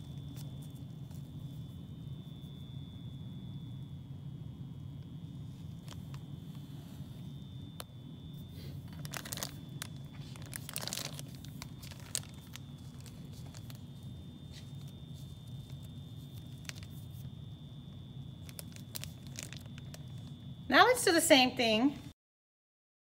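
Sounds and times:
steady low hum: 0.0 - 22.1
plastic bag crinkling: 5.6 - 6.4, 8.6 - 17.5, 18.2 - 20.4.

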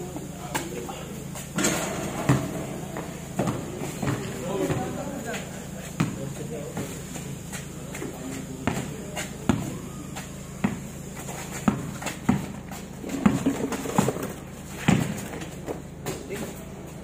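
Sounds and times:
basketball bouncing on concrete: 1.6 - 16.2.

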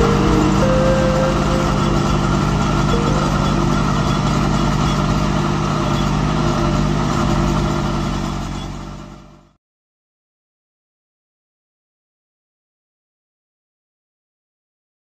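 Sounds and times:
tractor engine running: 0.0 - 9.5.

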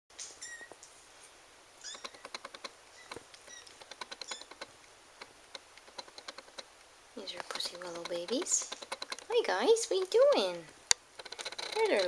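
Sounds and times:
small sharp clicks: 1.8 - 10.2, 10.9 - 12.0.

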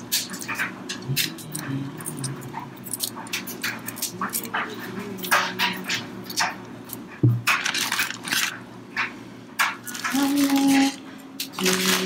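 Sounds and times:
shrimp shells crackling: 6.9 - 8.5.

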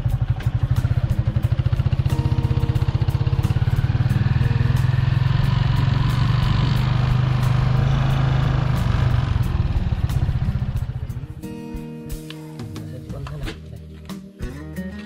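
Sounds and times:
small engine running: 0.0 - 11.4.

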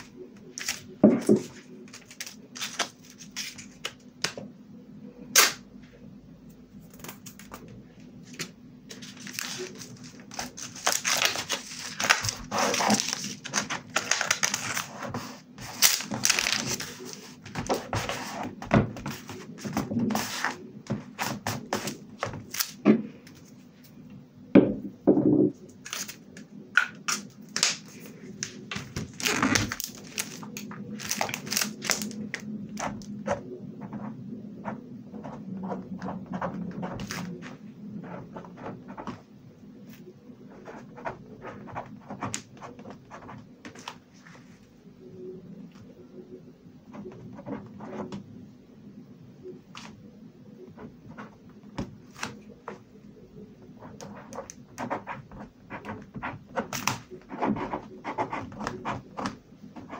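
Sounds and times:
paper rustling: 0.6 - 4.0, 8.3 - 20.6, 27.5 - 33.0.

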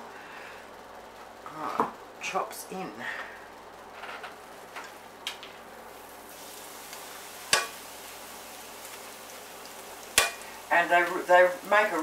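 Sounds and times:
meat sizzling in hot oil: 5.8 - 12.0
sharp knock against pan: 7.5 - 7.8, 10.2 - 10.4.

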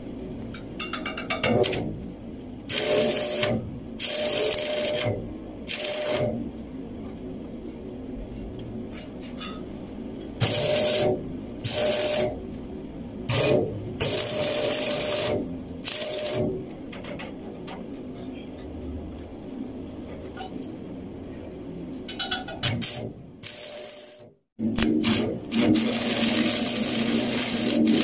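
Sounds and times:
steady background hum: 0.0 - 28.0
welding arc crackling and buzzing: 1.6 - 6.7, 10.4 - 16.8, 22.7 - 28.0.

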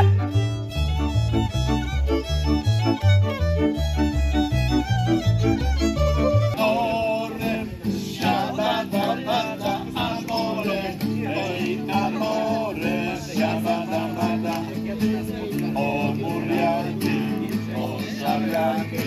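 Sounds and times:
acoustic guitar strumming: 0.0 - 19.0
group of people singing: 6.6 - 19.0.

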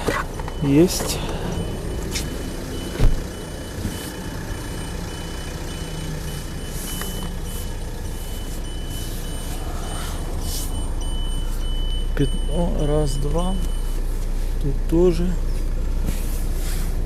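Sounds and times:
electronic beeper high tone: 0.0 - 14.0
low steady rumble: 0.0 - 17.0
thump: 3.0 - 3.2.

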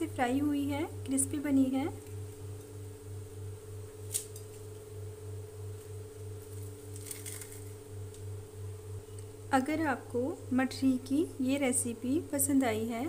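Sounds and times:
steady low hum: 0.0 - 13.0
fried snack crunching: 6.4 - 7.8.

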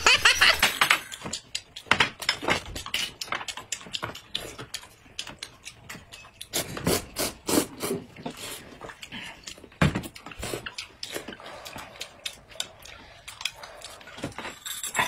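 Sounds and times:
man slurping and chewing noodles: 0.2 - 15.0.

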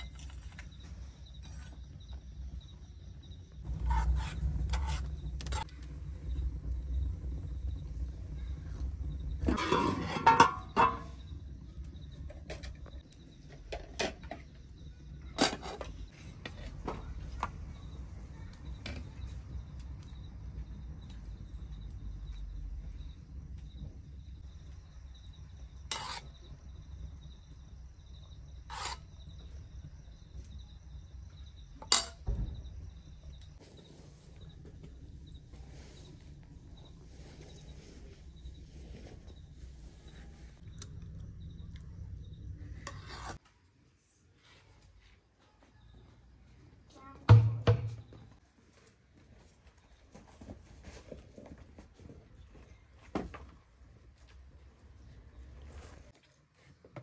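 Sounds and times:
crickets chirring: 0.0 - 43.2
ladle and plates clinking: 9.5 - 11.2.

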